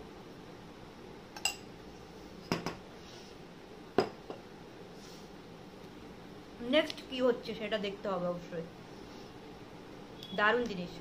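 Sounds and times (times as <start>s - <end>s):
spoon clinking glass bowl: 1.4s - 1.7s.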